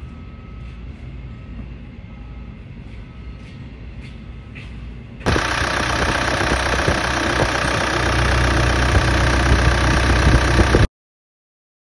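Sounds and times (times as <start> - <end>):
diesel engine running: 5.2 - 10.9.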